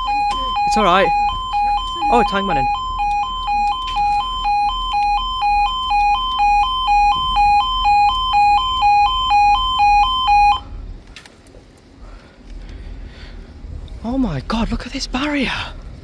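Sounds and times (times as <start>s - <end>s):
two-tone crossing warning alarm: 0.0s - 10.8s.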